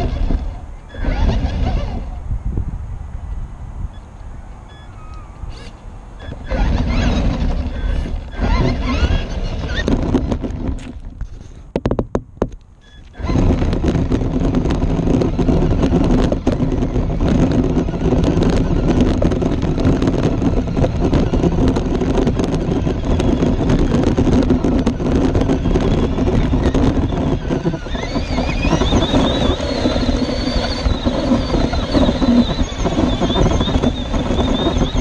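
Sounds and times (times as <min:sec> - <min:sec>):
electric motor whine: 0:00.0 - 0:02.2, 0:04.7 - 0:11.0, 0:12.8 - 0:35.0
wind on microphone: 0:00.0 - 0:35.0
tyres crunching over gravel: 0:06.6 - 0:11.8.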